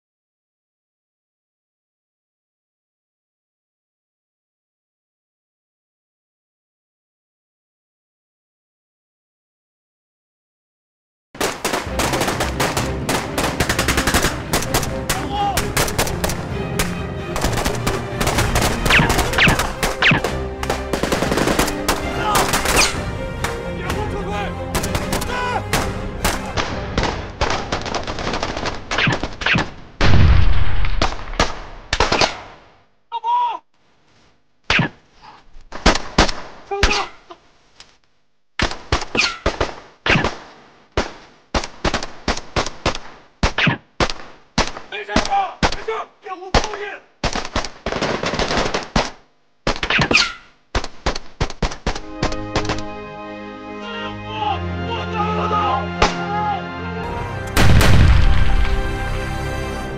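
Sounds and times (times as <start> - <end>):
assault rifle gunfire: 11.4 - 16.4, 17.4 - 22.8
heavy low boom: 57.2 - 59.4.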